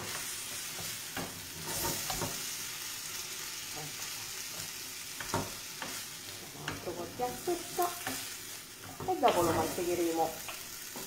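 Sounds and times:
wooden spoon scraping a pan: 0.0 - 2.6, 3.6 - 11.0
rice sizzling in a frying pan: 0.0 - 11.0.

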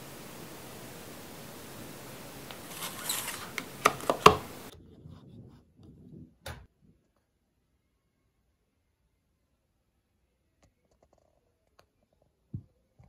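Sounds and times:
phone clicks: 2.4 - 4.7
phone rustling on wooden table: 2.5 - 4.7.

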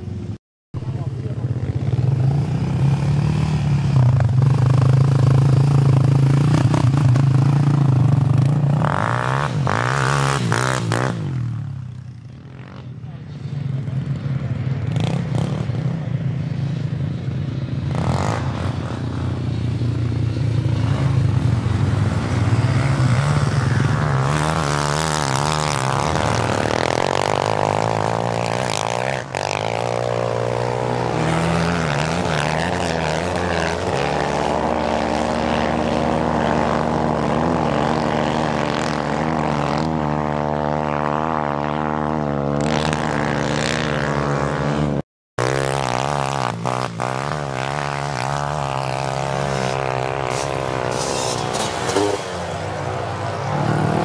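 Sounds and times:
quad bike engines revving: 0.0 - 54.0.

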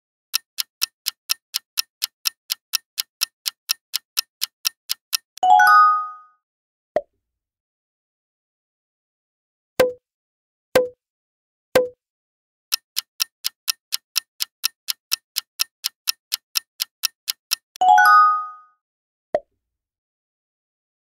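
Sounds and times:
countdown clock ticking: 0.3 - 5.4, 12.7 - 17.8.

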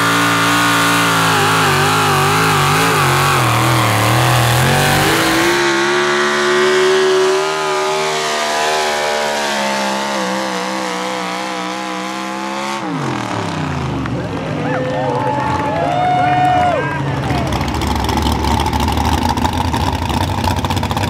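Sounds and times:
truck engine at full throttle: 0.0 - 21.0.

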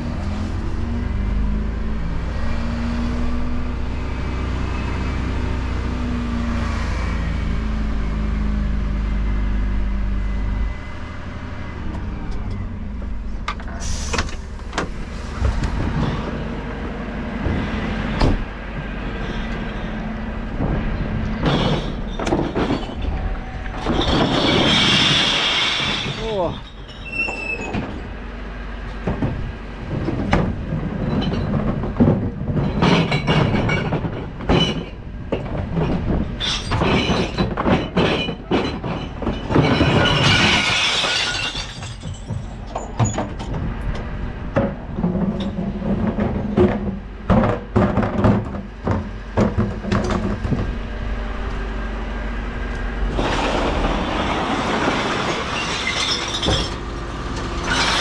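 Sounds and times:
truck engine humming: 0.0 - 26.0, 40.8 - 58.0
glass bottles crashing: 23.8 - 27.1, 32.6 - 35.0, 36.4 - 43.2, 53.2 - 56.8, 57.6 - 58.0
bins knocking: 44.6 - 50.8.

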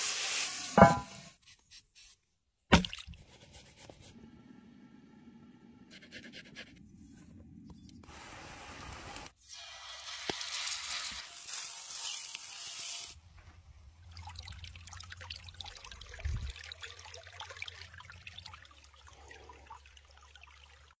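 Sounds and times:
batter sizzling in hot oil: 0.0 - 1.0, 9.1 - 13.2
stream trickling and babbling: 13.2 - 21.0.

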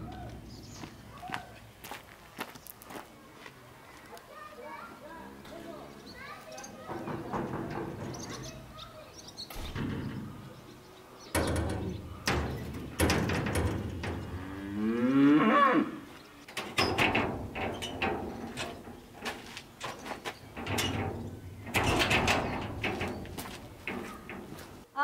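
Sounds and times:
sheet-metal gate clanking open: 6.6 - 8.9, 9.5 - 10.6, 11.3 - 15.5, 16.4 - 24.8
knocks and clatter: 6.8 - 8.8, 9.5 - 10.6, 11.3 - 15.0, 16.4 - 24.9
cow mooing: 14.3 - 16.0.

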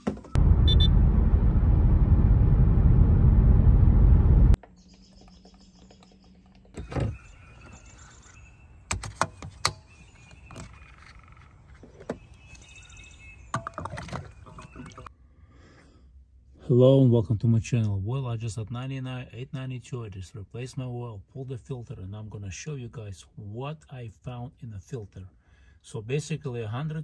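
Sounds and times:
loud rushing noise: 0.4 - 4.6.

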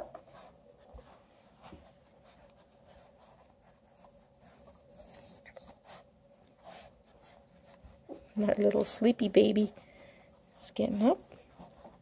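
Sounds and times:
puppy high-pitched squeaks: 4.4 - 6.0.

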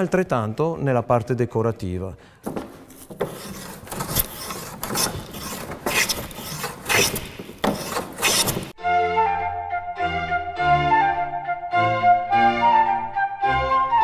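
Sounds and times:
hand tool rasping on wood: 2.5 - 8.8.

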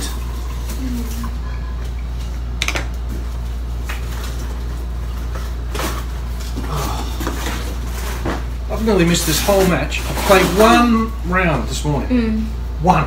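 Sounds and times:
groceries rustling and knocking: 2.1 - 11.2.

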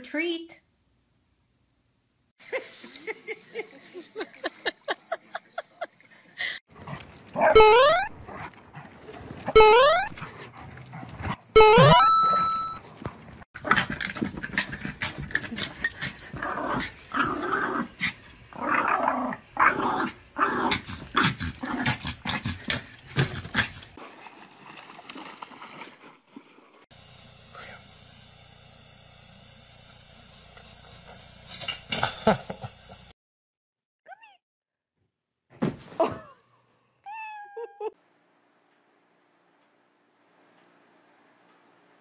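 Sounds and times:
small dog barking and growling: 7.4 - 8.5, 14.6 - 23.7.

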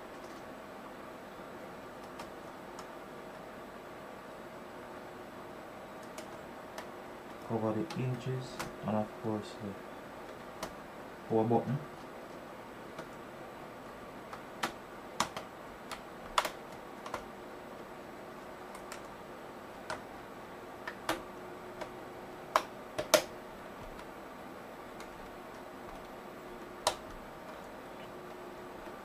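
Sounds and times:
laptop plastic panel clicking: 22.5 - 23.3, 26.7 - 27.2.

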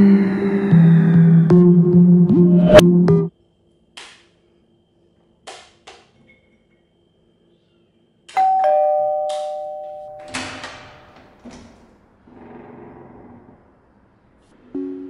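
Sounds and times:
two-tone doorbell chime: 8.4 - 10.4.

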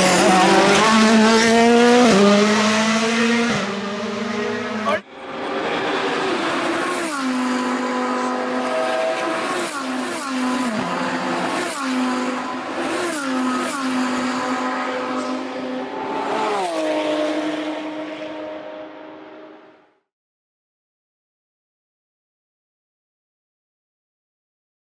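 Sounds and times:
rally car engine revving: 0.0 - 18.8.

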